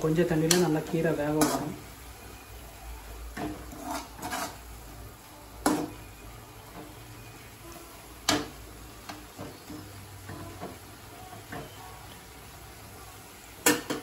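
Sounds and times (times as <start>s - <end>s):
ladle scraping greens in pan: 3.3s - 4.8s.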